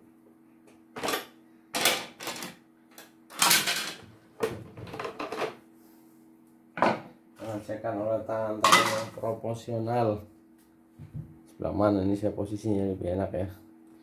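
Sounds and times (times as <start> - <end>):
plastic clattering on wooden bench: 3.4 - 5.6.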